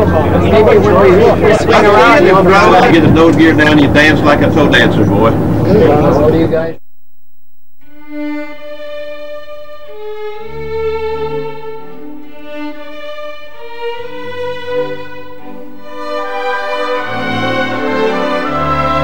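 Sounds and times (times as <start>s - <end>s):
slow instrumental music: 7.8s - 19.0s.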